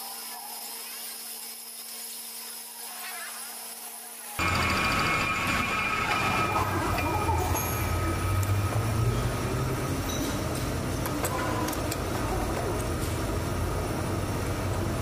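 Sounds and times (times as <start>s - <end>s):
high whine: 4.4s - 10.9s
low hum: 4.4s - 11.0s
metal lathe running: 4.4s - 11.1s.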